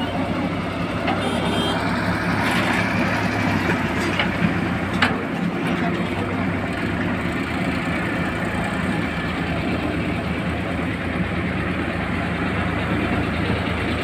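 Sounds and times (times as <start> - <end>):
diesel engine running: 0.0 - 14.0
backhoe digging soil: 2.2 - 7.6.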